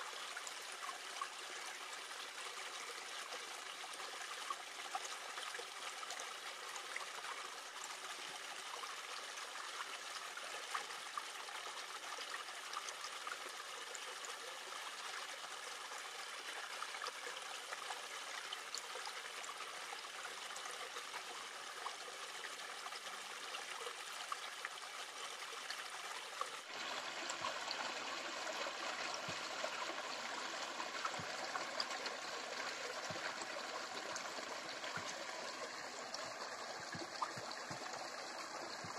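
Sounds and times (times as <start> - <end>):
river flowing over rocks: 26.6 - 38.9.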